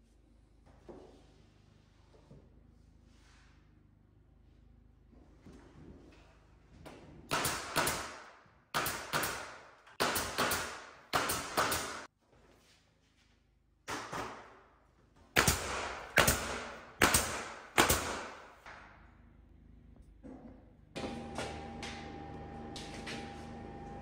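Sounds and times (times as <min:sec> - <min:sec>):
nail gun shots: 0:07.3 - 0:12.1, 0:15.4 - 0:18.6.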